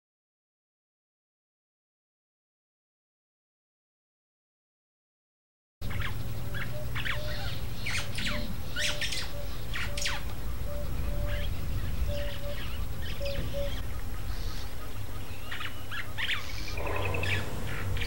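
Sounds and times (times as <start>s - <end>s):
steady low rumble: 5.8s - 15.3s, 16.4s - 18.0s
birds chirping and squawking: 5.8s - 18.0s.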